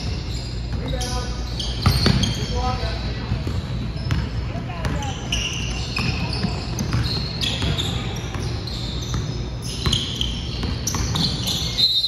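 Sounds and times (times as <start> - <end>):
sneakers squeaking on hardwood: 0.0 - 12.0
basketball dribbling: 1.8 - 2.3, 3.3 - 11.8.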